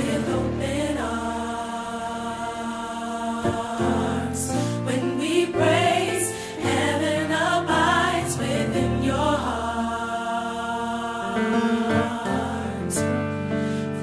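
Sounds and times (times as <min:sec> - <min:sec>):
gospel singing: 0:00.0 - 0:14.0.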